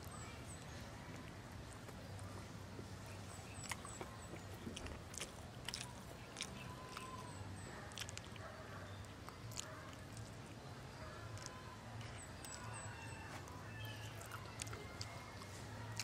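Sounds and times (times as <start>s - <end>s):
wet chewing: 3.1s - 16.0s.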